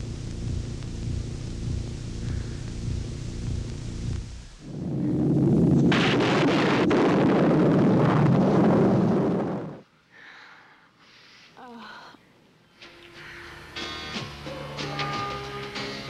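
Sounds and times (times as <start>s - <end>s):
loud dense rumbling: 0.0s - 9.8s.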